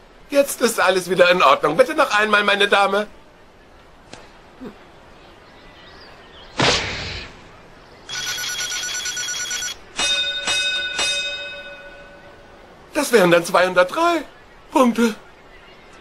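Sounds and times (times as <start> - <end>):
bell-like dings: 8.1 - 12.4
electronic ringing trill: 8.1 - 12.5.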